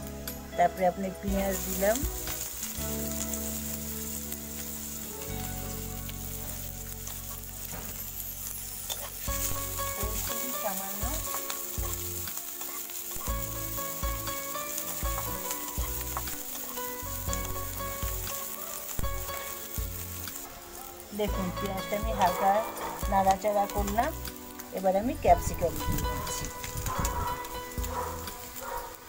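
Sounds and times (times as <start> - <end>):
onion sizzling in hot oil: 0.0 - 29.0
spatula scraping a pan: 6.3 - 18.9.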